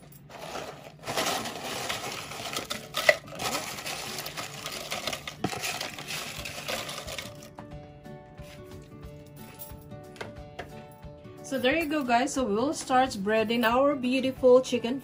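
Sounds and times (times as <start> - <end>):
chips rattling into plastic bowl: 0.3 - 7.5.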